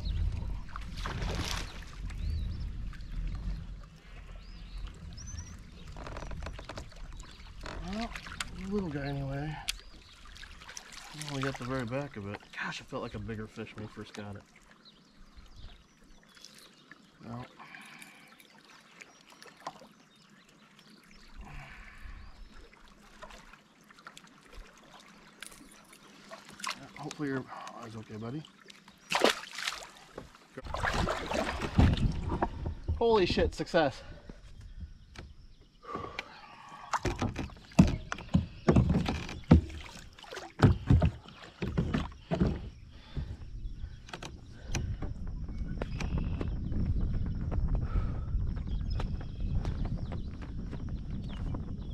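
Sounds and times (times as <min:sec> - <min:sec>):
paddle splashes: 0:00.0 - 0:34.4, 0:35.1 - 0:45.2
water lapping and trickling: 0:00.0 - 0:51.8
paddle knocking on kayak hull: 0:37.0 - 0:43.4.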